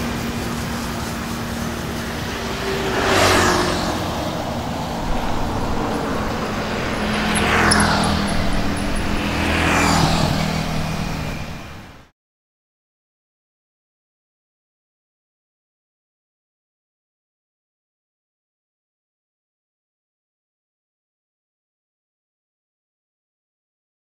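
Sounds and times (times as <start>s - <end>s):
hose spraying water: 0.0s - 11.5s
road traffic passing: 0.0s - 12.1s.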